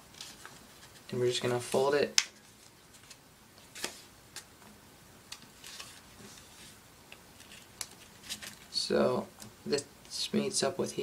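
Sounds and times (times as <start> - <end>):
paper rustling: 0.0 - 4.5, 5.3 - 8.8.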